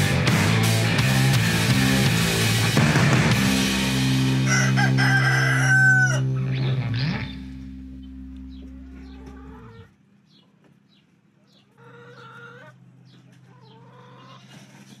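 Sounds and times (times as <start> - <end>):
rooster crowing: 4.4 - 6.4
low held tone: 6.1 - 9.9.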